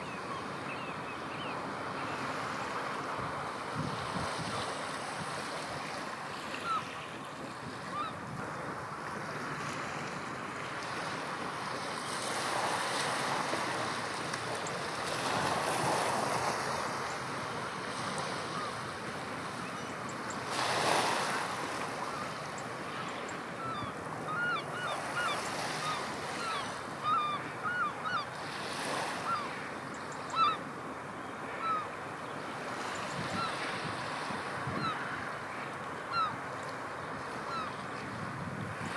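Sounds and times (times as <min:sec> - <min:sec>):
rough surf: 0:01.7 - 0:30.0
strong wind: 0:03.2 - 0:05.4, 0:38.0 - 0:38.9.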